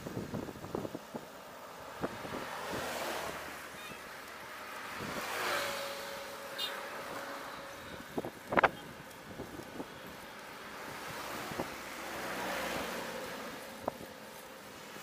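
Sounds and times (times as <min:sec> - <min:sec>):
wind buffeting microphone: 0:00.0 - 0:02.9, 0:07.9 - 0:10.2
cars swishing by: 0:00.0 - 0:15.0.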